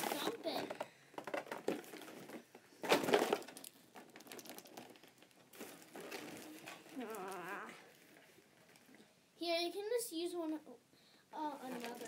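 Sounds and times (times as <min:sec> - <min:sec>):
plastic bags rustling and crinkling: 0:00.0 - 0:09.0, 0:11.4 - 0:12.0.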